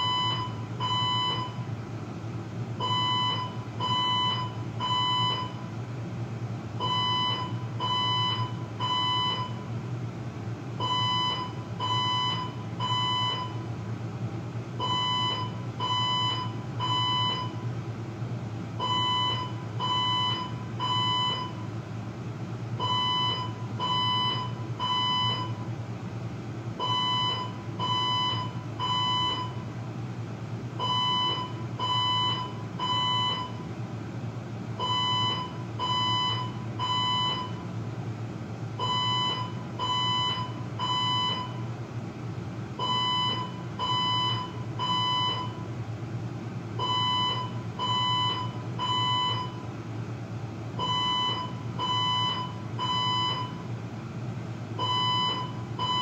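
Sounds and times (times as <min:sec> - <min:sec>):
fire alarm beeping: 0:00.0 - 0:01.7, 0:02.8 - 0:05.7, 0:06.8 - 0:09.7, 0:10.8 - 0:13.7, 0:14.8 - 0:17.6, 0:18.8 - 0:21.7, 0:22.8 - 0:25.6, 0:26.8 - 0:29.6, 0:30.8 - 0:33.7, 0:34.8 - 0:37.7, 0:38.8 - 0:41.7, 0:42.8 - 0:45.7, 0:46.8 - 0:49.7, 0:50.8 - 0:53.7, 0:54.8 - 0:56.0.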